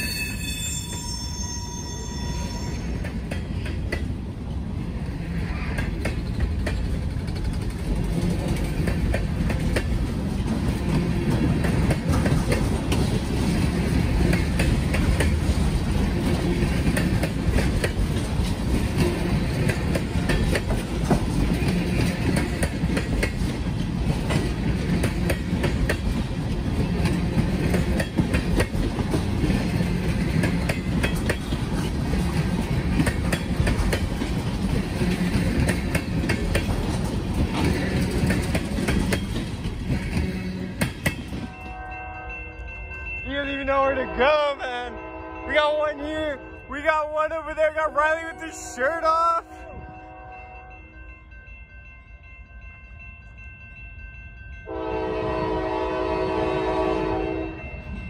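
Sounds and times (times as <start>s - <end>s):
train wheels rumbling on rail: 0.0s - 50.4s, 51.0s - 58.0s
wheels clacking over rail joints: 2.8s - 41.8s.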